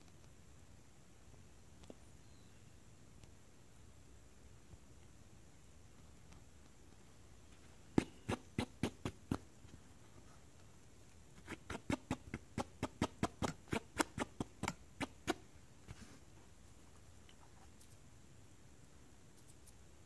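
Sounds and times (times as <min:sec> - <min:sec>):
fingers tapping cap brim: 0:11.6 - 0:15.4.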